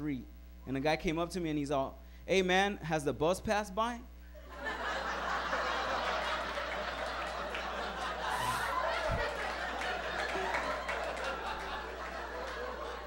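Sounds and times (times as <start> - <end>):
audience laughing: 4.4 - 13.0.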